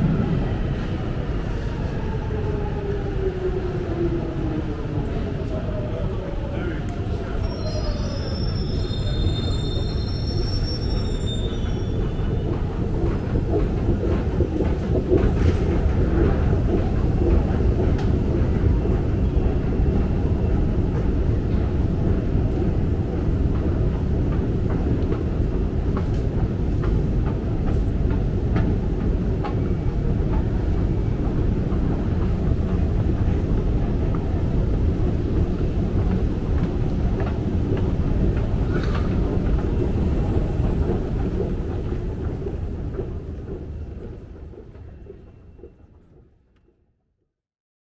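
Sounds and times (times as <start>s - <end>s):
steady low rumble: 0.0s - 2.3s.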